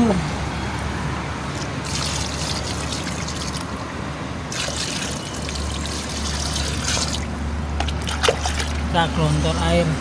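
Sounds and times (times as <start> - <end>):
water splashing into pool: 1.5 - 3.7, 4.5 - 8.9.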